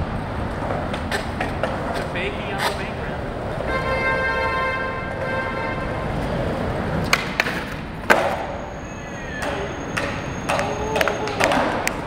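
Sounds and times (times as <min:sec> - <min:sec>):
skateboard wheels rolling on concrete: 0:00.0 - 0:12.0
skateboard landing slap: 0:07.0 - 0:08.5, 0:09.4 - 0:12.0.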